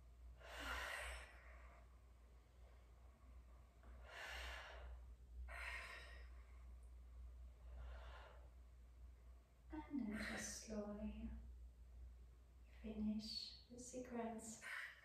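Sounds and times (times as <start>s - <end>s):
faint low hum: 0.0s - 15.0s
deep breaths: 0.3s - 8.8s.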